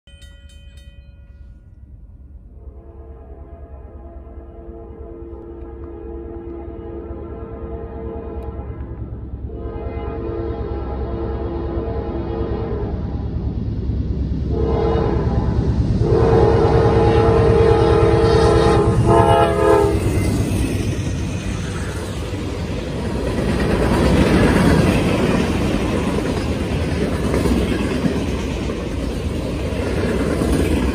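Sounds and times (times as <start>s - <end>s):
train cars rumbling and clattering: 0.1s - 30.9s
locomotive air horn: 2.5s - 13.1s, 14.5s - 20.1s.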